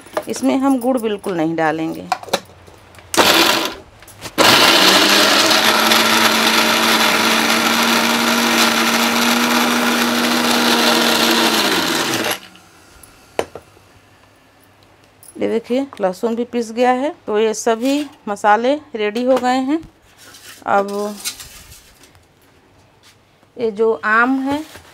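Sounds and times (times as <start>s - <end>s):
mixer grinder motor: 3.2s - 3.8s, 4.4s - 13.5s.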